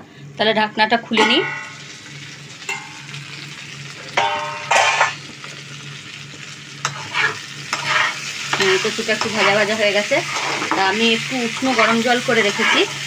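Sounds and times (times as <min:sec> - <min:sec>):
vegetables sizzling in oil: 0:01.2 - 0:13.0
metallic pan rings and scrapes: 0:04.2 - 0:05.2.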